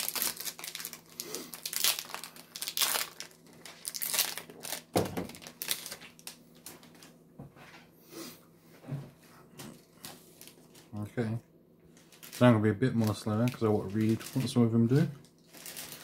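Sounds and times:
foil wrappers crinkling: 0.0 - 7.2, 9.7 - 11.0, 11.9 - 16.0.

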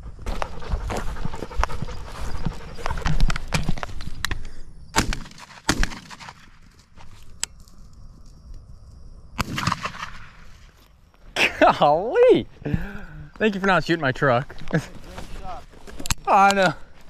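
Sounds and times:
shotgun shots: 4.9 - 6.6, 9.4 - 10.5.

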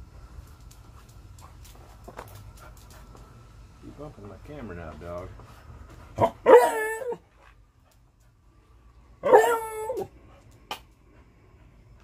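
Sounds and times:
dog whining: 6.2 - 7.2, 9.2 - 10.1.

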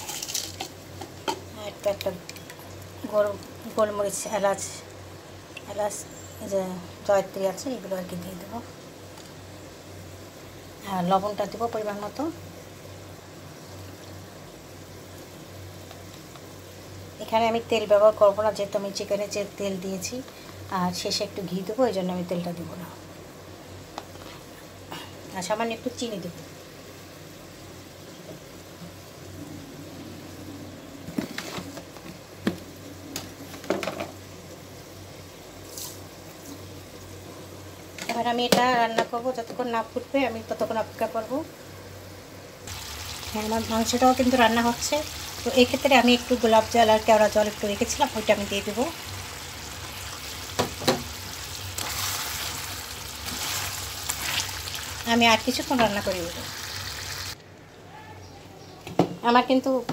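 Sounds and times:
chicken sizzling in a pan: 0.0 - 4.8, 42.6 - 57.4.

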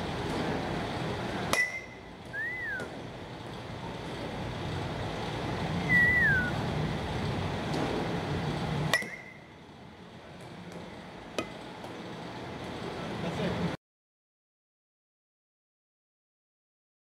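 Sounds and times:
steady background noise: 0.0 - 13.8
metal bat pinging ball: 1.5 - 2.1, 8.9 - 9.4, 11.3 - 11.6
whistle-like tone dipping in pitch: 2.4 - 2.9, 5.8 - 6.6.

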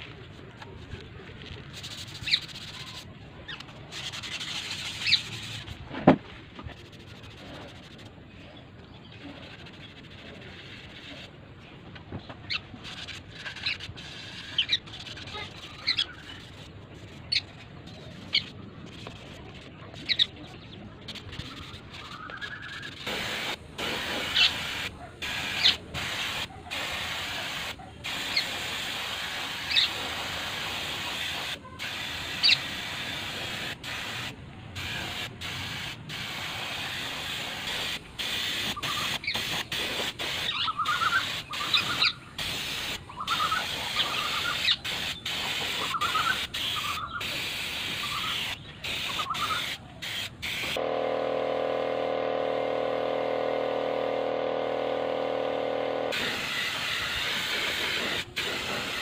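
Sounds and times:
spray gun hissing: 23.0 - 50.9, 54.0 - 59.0
steady hum: 50.8 - 56.8.

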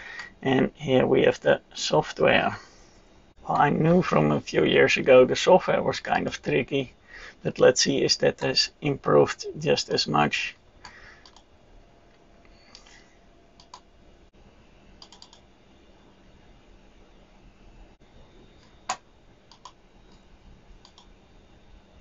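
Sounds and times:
faint room hiss: 0.0 - 22.0
computer mouse clicks: 10.8 - 11.5, 13.6 - 13.9, 15.0 - 15.5, 18.6 - 20.2, 20.8 - 21.1.

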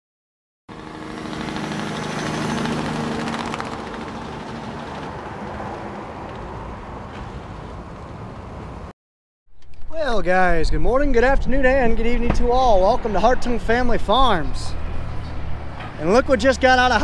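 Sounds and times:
engine running steadily: 0.7 - 5.4.

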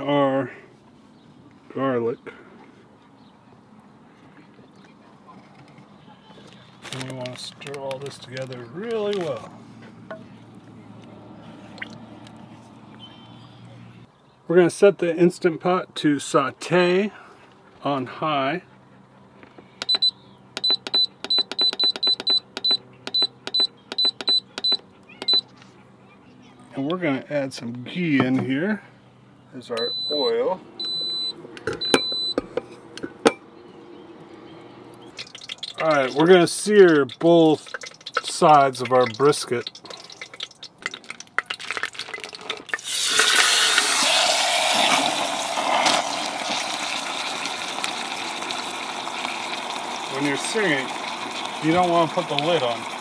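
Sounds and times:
light clicks and rustles: 4.4 - 12.5
short high beeps with clicks: 19.8 - 25.5, 29.7 - 32.4
meat sizzling in hot fat: 39.6 - 53.0.

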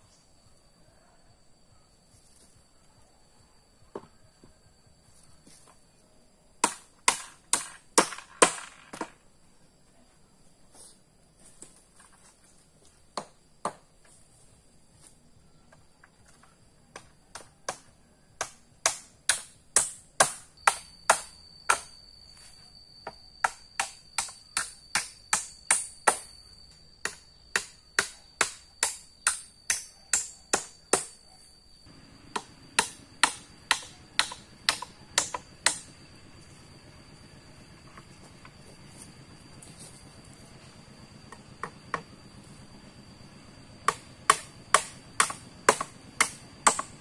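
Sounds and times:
hand tool chopping blows: 6.6 - 9.2, 17.0 - 22.0, 32.3 - 35.9, 43.8 - 47.0.

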